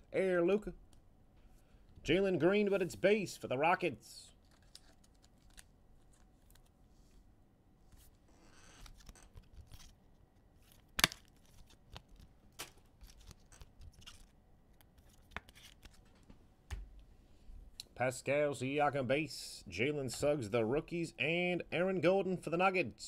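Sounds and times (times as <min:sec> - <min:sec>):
card pack rustling: 0:04.3 - 0:06.8, 0:10.6 - 0:16.2
trading cards scraping: 0:08.0 - 0:10.0.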